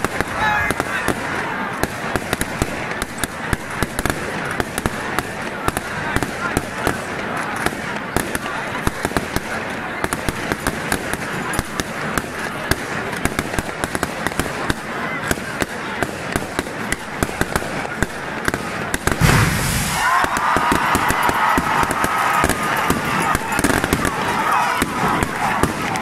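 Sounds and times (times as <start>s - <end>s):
crowd shouting: 0.0s - 26.0s
crowd voices: 0.0s - 26.0s
firecrackers crackling: 0.0s - 26.0s
confetti cannon boom with hiss: 19.0s - 22.2s.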